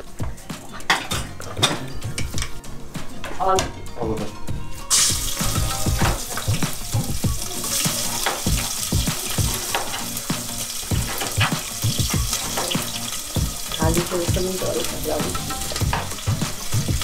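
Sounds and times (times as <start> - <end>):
vegetables sizzling in oil: 4.9 - 17.0.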